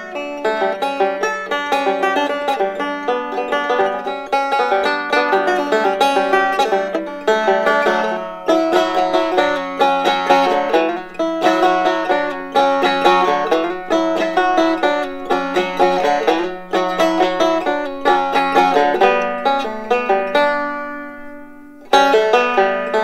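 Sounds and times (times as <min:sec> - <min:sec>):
banjo plucked notes: 0:00.0 - 0:23.0.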